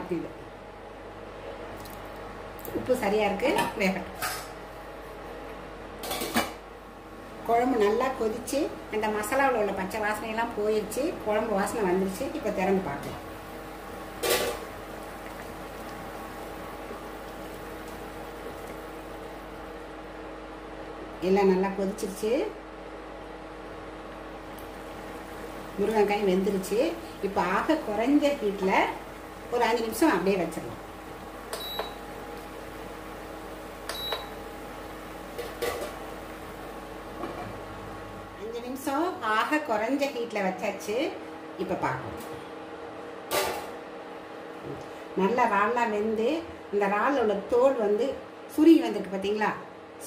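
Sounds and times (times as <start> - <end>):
steady low hum: 0.0 - 50.0
curry bubbling in a pan: 13.3 - 20.2
cooktop touch buttons beeping: 31.5 - 32.0, 33.9 - 34.4.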